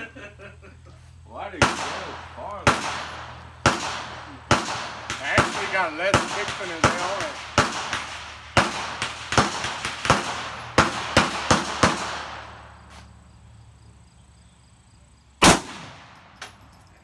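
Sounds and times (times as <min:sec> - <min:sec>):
gunshots echoing: 0:01.5 - 0:12.8, 0:15.4 - 0:16.4
loud close rifle shot: 0:01.6 - 0:12.7, 0:15.4 - 0:16.3.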